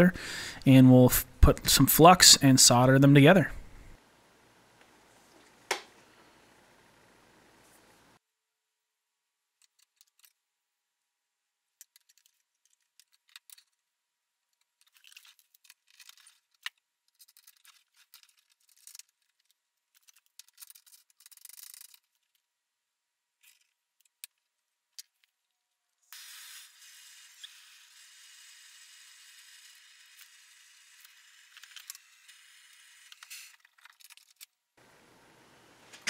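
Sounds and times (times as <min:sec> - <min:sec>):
small metal clicks: 0:09.6 - 0:10.4, 0:11.8 - 0:13.8, 0:14.5 - 0:22.5, 0:23.4 - 0:25.6, 0:33.1 - 0:34.6.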